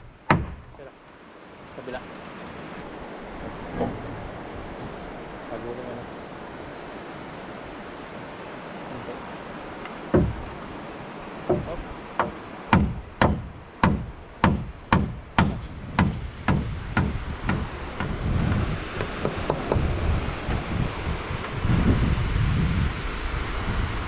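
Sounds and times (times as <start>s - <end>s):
hammer striking nail into wood: 0.2s - 0.7s, 10.1s - 10.5s, 11.5s - 19.8s.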